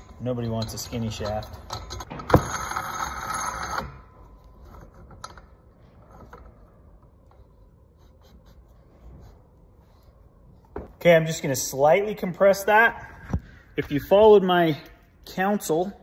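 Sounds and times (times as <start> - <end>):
metal clicking and scraping: 0.0 - 6.7.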